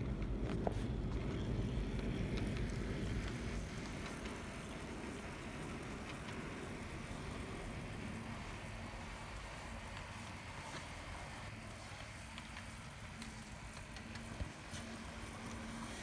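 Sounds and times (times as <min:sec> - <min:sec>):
model train wheels rumbling on rails: 0:00.0 - 0:16.0
faint clicks: 0:11.9 - 0:16.0.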